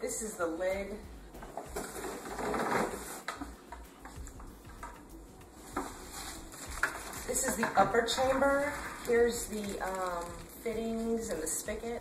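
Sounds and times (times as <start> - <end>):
cardboard box rustling and scraping: 1.8 - 3.3.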